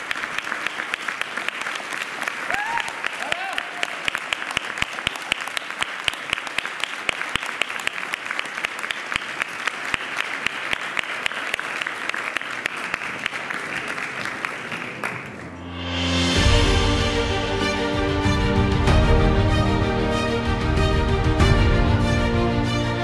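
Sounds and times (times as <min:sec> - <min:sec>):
audience applauding: 0:00.0 - 0:15.8
music: 0:15.0 - 0:23.0.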